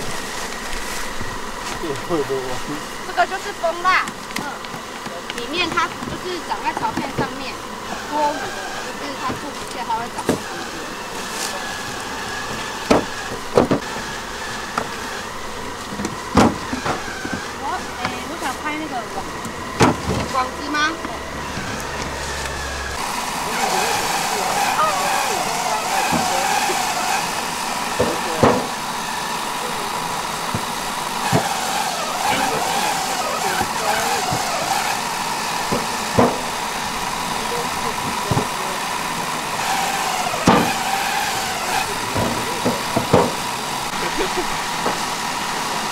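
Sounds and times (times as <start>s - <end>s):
bees buzzing: 0.0s - 45.9s
wooden frames knocking: 12.1s - 14.0s, 14.6s - 29.0s, 30.2s - 36.9s, 38.0s - 38.7s, 39.6s - 44.0s
wooden frames knocking on metal: 12.8s - 13.9s, 15.9s - 18.1s, 19.4s - 20.3s, 35.6s - 36.7s, 41.7s - 43.5s.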